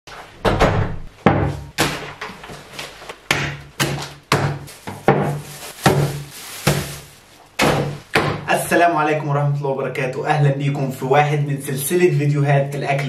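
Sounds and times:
plastic bags rustling: 2.4 - 8.6.

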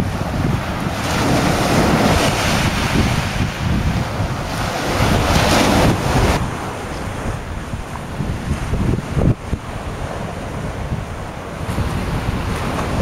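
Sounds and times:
waves breaking on shingle beach: 0.0 - 13.0
wind buffeting microphone: 0.0 - 13.0.

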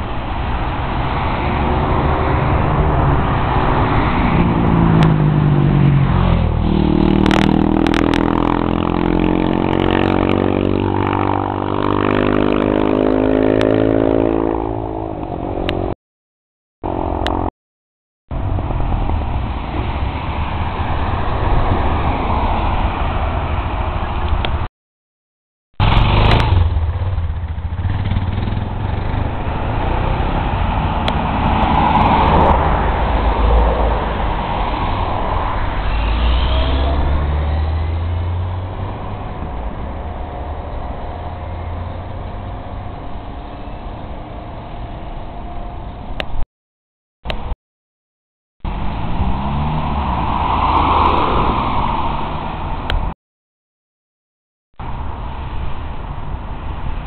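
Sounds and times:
street traffic rumble: 0.0 - 16.0, 16.8 - 17.5, 18.3 - 24.7, 25.8 - 46.4, 47.2 - 47.6, 48.6 - 53.2, 54.8 - 57.0
car driving past: 25.8 - 42.7.

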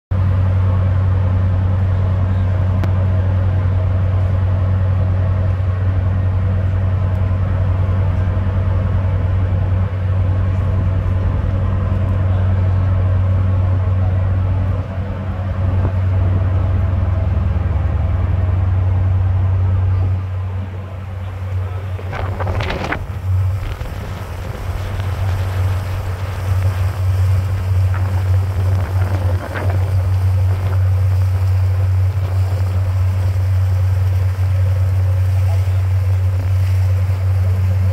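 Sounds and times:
churning wake water: 0.1 - 37.9
ship engines droning: 0.1 - 37.9
wind on microphone: 21.1 - 37.9.

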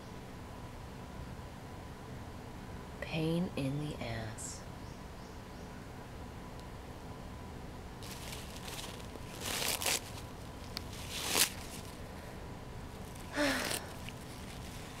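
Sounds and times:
paper towels rustling and tearing: 8.0 - 12.1, 13.0 - 15.0.

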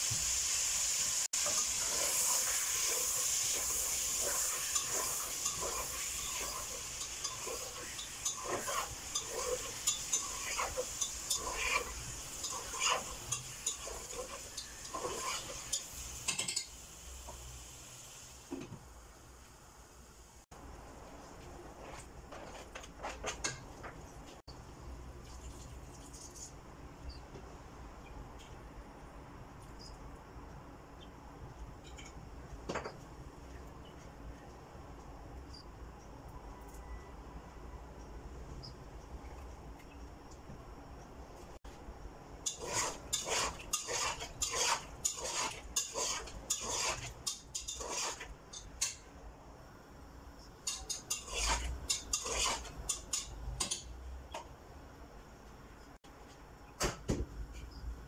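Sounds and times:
spatula scraping and knocking pan: 1.4 - 16.7, 42.4 - 49.0, 50.6 - 53.9.

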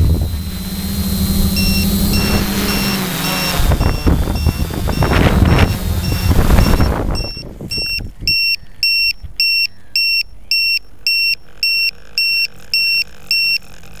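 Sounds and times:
drone rotor noise: 0.0 - 8.2
short high-pitched beeps: 0.0 - 13.6.

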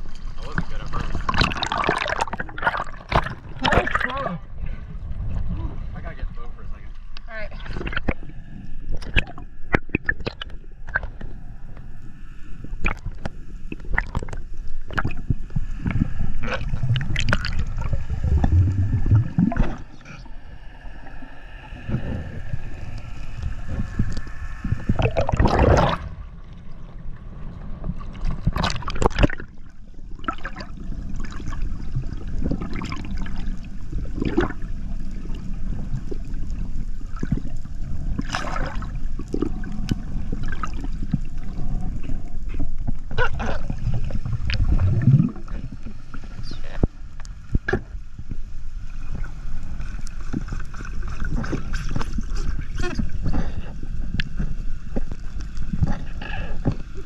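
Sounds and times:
underwater rush of water: 0.0 - 57.0
crackles and knocks: 8.9 - 11.9, 12.7 - 20.2, 22.8 - 34.6, 35.3 - 53.4, 54.1 - 57.0.

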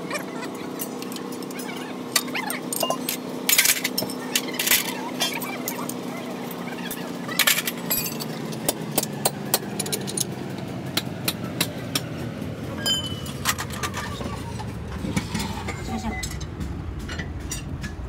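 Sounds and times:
low hum: 0.0 - 18.0
steel bars clinking on metal: 0.7 - 6.0, 7.4 - 10.4, 12.8 - 18.0.

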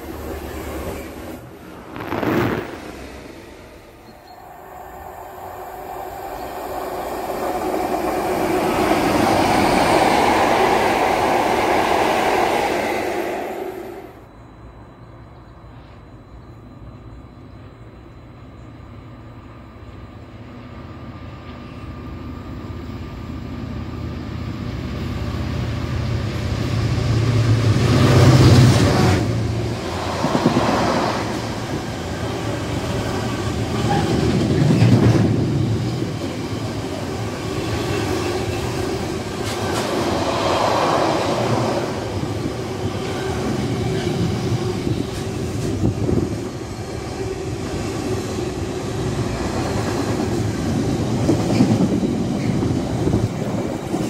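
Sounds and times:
diesel locomotive passing: 0.0 - 54.0
train wheels rumbling and clattering: 5.2 - 13.7, 24.6 - 54.0.

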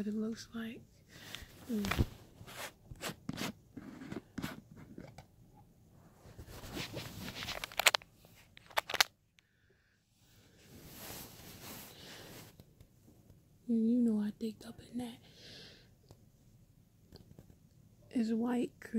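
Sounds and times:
plastic jar handling clicks: 7.5 - 8.0, 8.6 - 9.1.

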